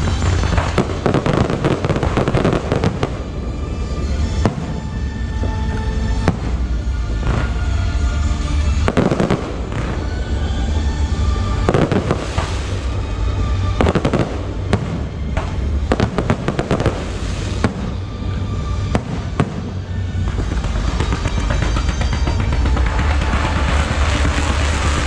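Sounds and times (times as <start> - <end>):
steady low rumble: 0.0 - 25.0
firework shells bursting: 18.8 - 25.0.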